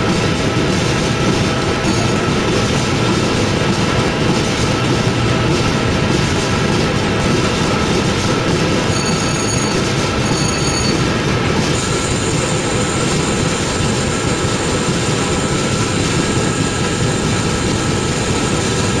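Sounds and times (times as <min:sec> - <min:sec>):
low mechanical rumble: 0:00.0 - 0:19.0.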